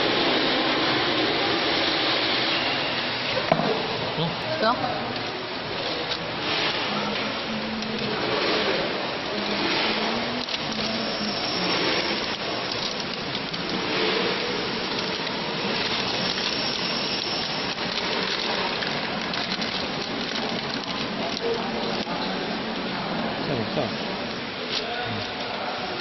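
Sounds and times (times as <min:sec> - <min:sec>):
packaging film crinkling: 0:14.7 - 0:22.2.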